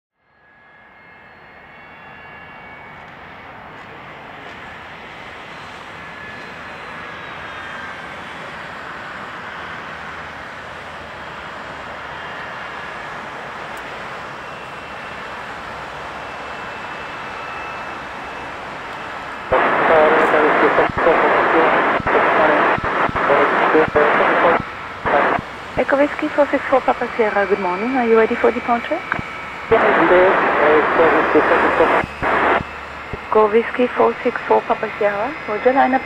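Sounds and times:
jet engines whining at taxi power: 0.5 - 36.0.

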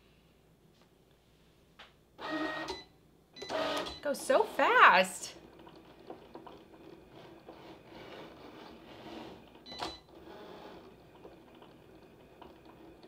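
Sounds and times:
cutting machine motors whirring: 5.5 - 13.0.

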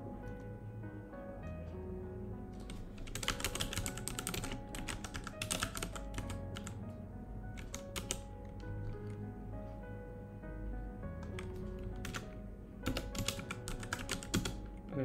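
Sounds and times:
background music: 0.0 - 15.0
typing on keyboard: 2.6 - 6.8, 7.6 - 9.2, 11.2 - 15.0.

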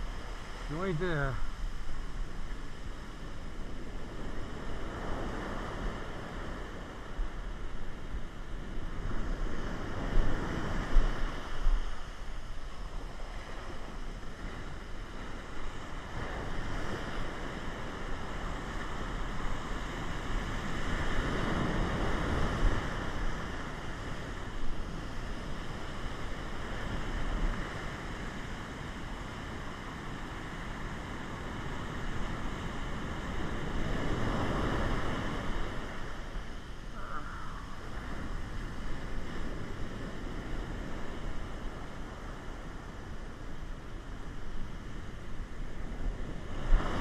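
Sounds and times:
ocean surf breaking on sand: 0.0 - 47.0
wind rumbling on microphone: 0.0 - 47.0.

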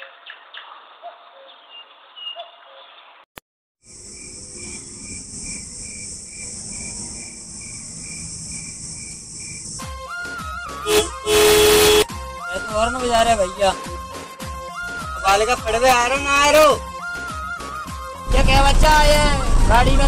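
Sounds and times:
bird chirps: 0.0 - 3.2
cricket chirping: 3.9 - 9.8
high-pitched insect drone: 3.9 - 9.9.

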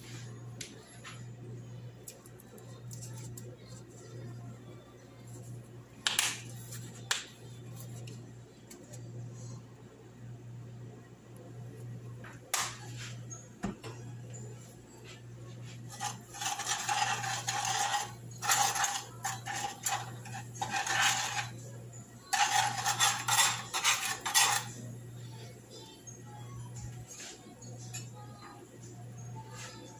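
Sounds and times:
utensil scraping a skillet: 15.7 - 21.6, 22.3 - 24.8.

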